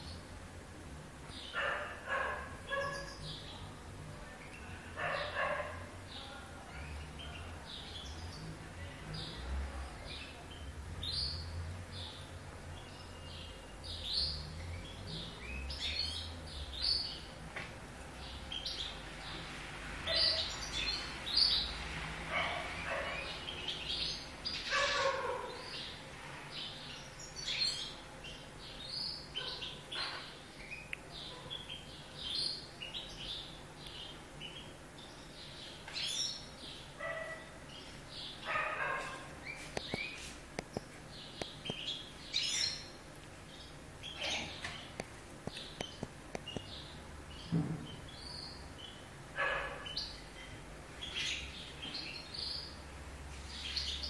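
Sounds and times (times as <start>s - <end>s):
canaries chirping: 1.2s - 17.4s, 18.0s - 54.0s.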